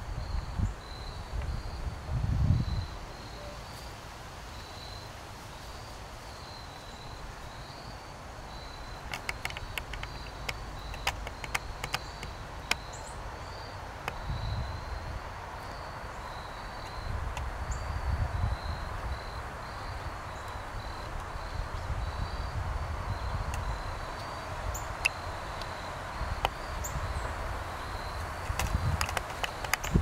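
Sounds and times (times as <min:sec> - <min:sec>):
insect chirping: 0:00.0 - 0:30.0
sharp clicks: 0:09.0 - 0:12.9, 0:28.2 - 0:30.0.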